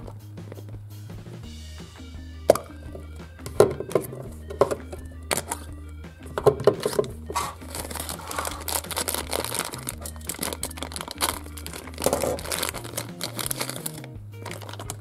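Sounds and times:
plastic wrapper crinkling: 0:06.8 - 0:15.0.

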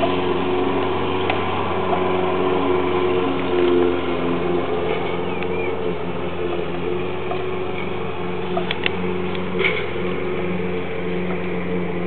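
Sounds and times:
lawn mower engine running: 0:00.0 - 0:12.0.

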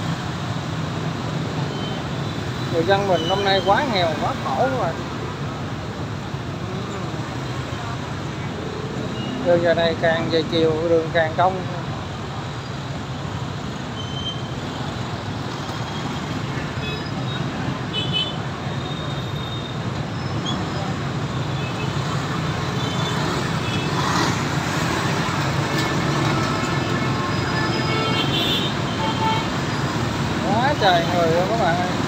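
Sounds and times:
motorbike traffic hum: 0:00.0 - 0:32.0.

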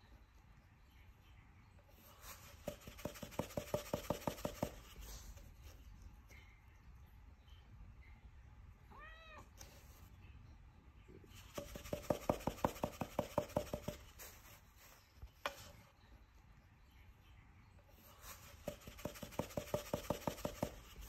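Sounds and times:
kitten meowing: 0:08.9 - 0:09.5.

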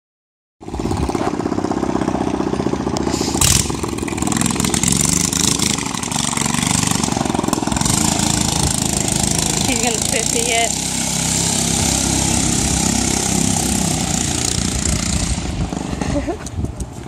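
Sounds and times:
mini bike engine running: 0:00.7 - 0:17.0
loud burst of noise: 0:03.0 - 0:06.2.

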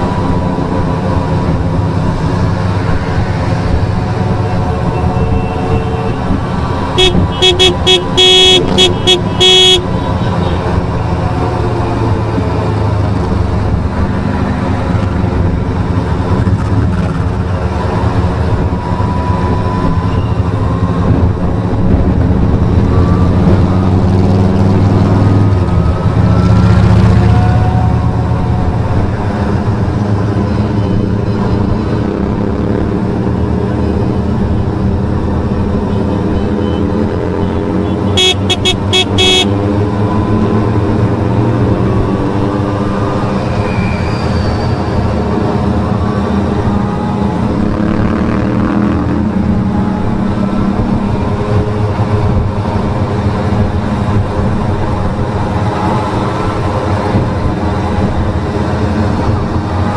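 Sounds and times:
wind rumble: 0:00.0 - 0:36.6
horn tooting short blasts: 0:07.0 - 0:09.9, 0:38.1 - 0:39.5.

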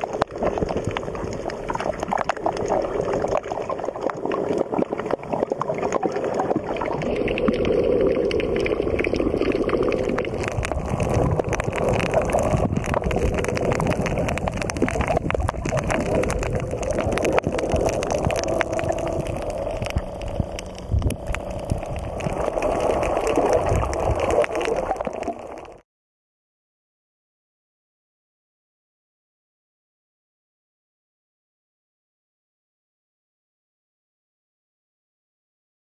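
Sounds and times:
small underwater clicks: 0:00.0 - 0:25.8
water gurgling underwater: 0:00.0 - 0:25.8.

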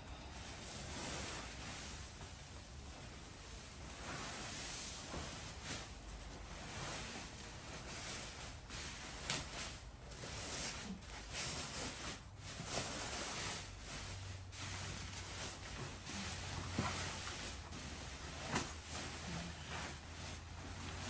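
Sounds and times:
fabric rustling and swishing: 0:00.0 - 0:21.0.

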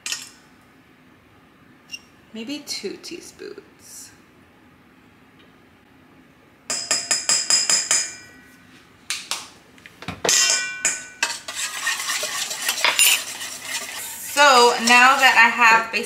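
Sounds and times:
metal spoons clinking on steel bowl: 0:10.3 - 0:11.4, 0:12.6 - 0:13.4, 0:14.3 - 0:15.8
spoons scraping bowl: 0:11.2 - 0:16.0.

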